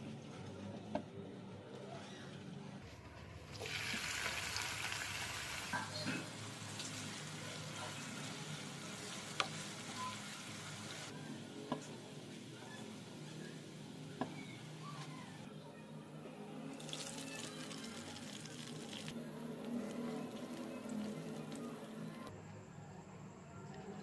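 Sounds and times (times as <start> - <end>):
onions sizzling in oil: 3.5 - 11.1.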